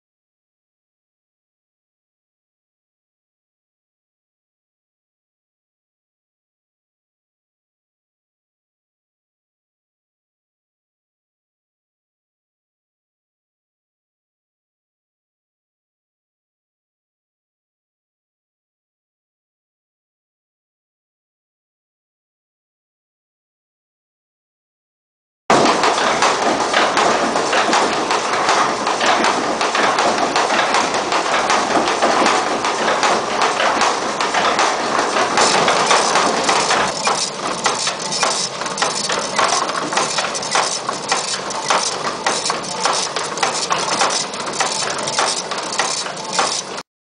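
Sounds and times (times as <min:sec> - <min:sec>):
grinding machinery rumble: 0:25.5 - 0:46.8.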